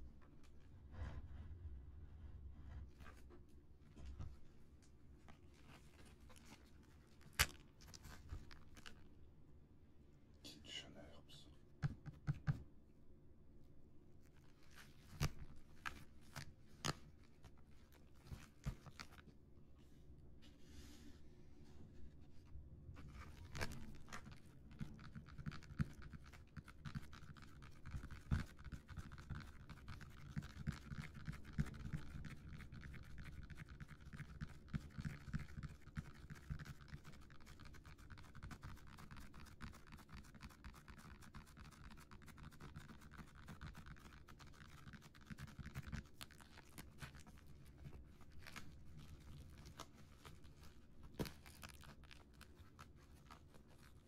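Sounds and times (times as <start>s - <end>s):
cellophane crinkling: 43.7s - 54.0s.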